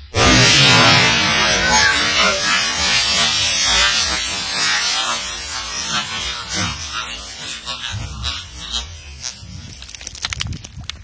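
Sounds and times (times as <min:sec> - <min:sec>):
water spray hiss: 0:00.3 - 0:10.2
water and ice splashing into puddle: 0:09.7 - 0:11.0.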